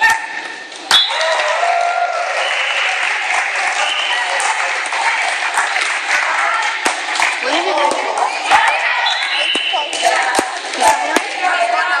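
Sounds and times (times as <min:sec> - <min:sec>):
people shouting and cheering: 0:00.0 - 0:12.0
people clapping: 0:00.7 - 0:12.0.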